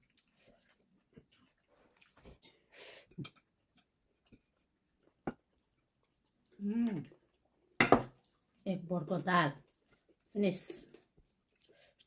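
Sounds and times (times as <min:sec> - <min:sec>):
person chewing: 0:00.0 - 0:08.6, 0:10.9 - 0:12.0.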